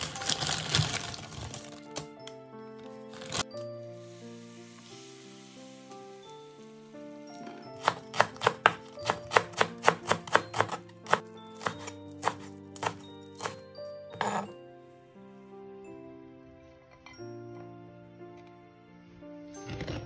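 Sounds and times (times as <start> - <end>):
soft background music: 0.0 - 20.0
knife chopping on cutting board: 7.8 - 13.6
knife scraping board: 14.1 - 14.5.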